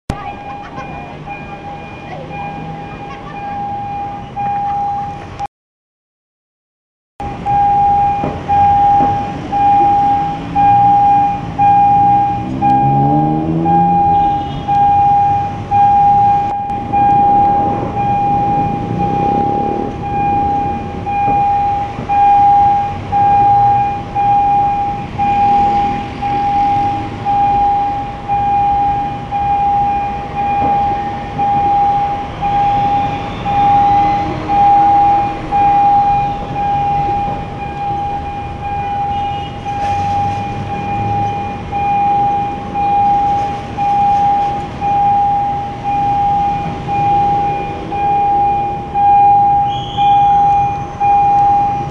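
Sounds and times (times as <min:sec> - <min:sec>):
level crossing alarm pulsing: 0:00.1 - 0:05.5, 0:07.2 - 0:51.9
road traffic: 0:00.1 - 0:05.5, 0:07.2 - 0:51.9
train rumbling past: 0:07.5 - 0:23.9, 0:30.3 - 0:39.0.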